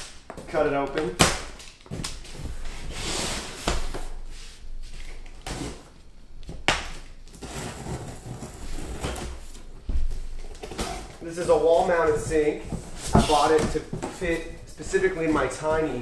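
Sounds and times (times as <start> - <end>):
cardboard rustling and scraping: 7.4 - 16.0.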